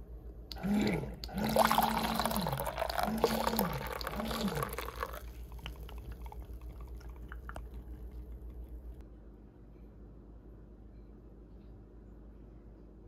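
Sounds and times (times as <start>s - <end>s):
coffee machine pump humming: 0.5s - 9.0s
light drips: 1.2s - 9.0s
coffee pouring into mug: 1.3s - 9.0s.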